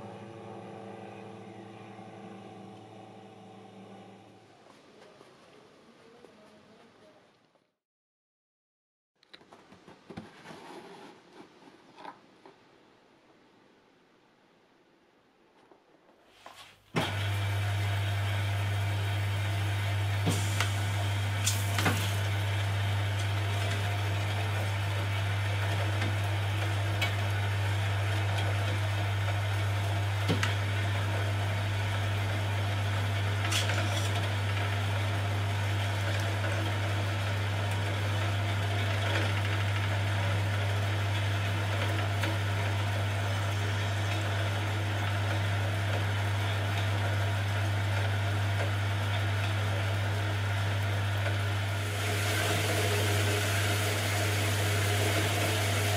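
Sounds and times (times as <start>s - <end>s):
low motor hum: 0.0s - 5.2s, 17.0s - 55.9s.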